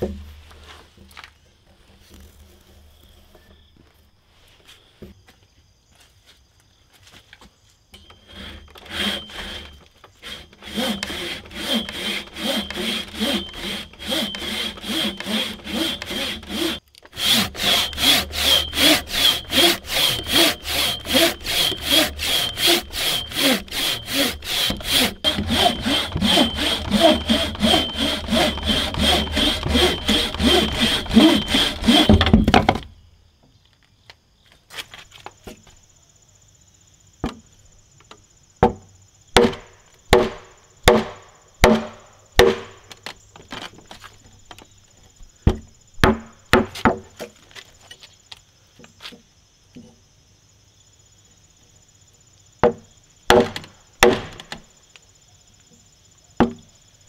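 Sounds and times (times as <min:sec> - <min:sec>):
hand saw rasping through wood: 0:08.2 - 0:32.4.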